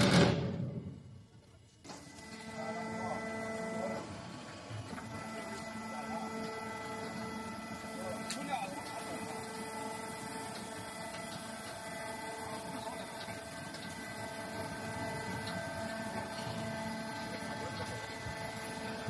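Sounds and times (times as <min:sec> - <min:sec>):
machinery humming tones: 0:00.0 - 0:19.0.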